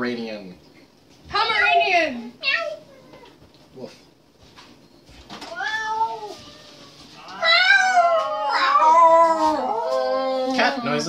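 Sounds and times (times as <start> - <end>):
people imitating cat meows: 7.2 - 10.9.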